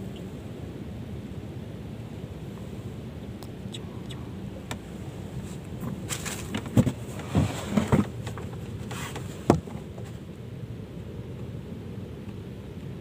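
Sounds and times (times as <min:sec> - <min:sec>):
steady low rumble: 0:00.0 - 0:13.0
knocks on a wooden boat: 0:09.5 - 0:09.7.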